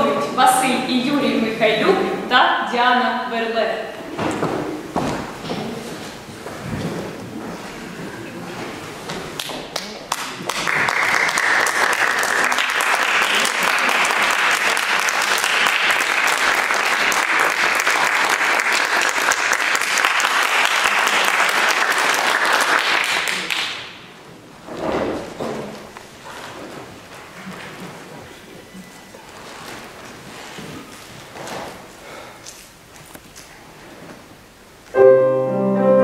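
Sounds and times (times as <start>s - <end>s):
audience applauding: 9.4s - 24.0s.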